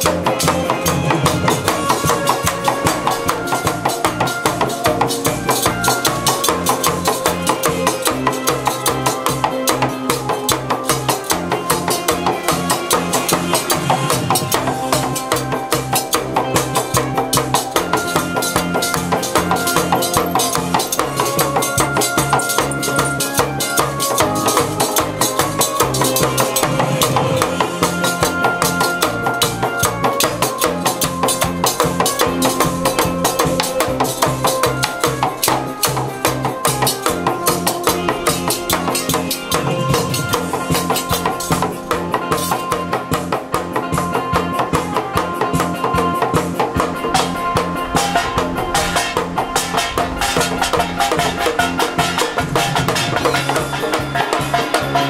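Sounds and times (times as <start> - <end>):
music with driving drum beat: 0.0 - 55.0.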